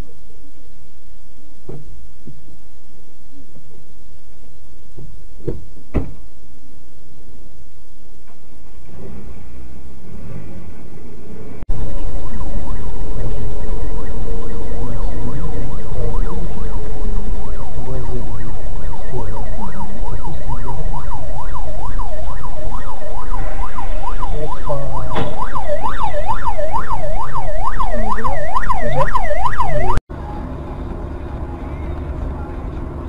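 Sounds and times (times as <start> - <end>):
road rumble: 0.0 - 33.0
sharp knock: 5.4 - 6.2
emergency siren yelping: 11.7 - 30.6.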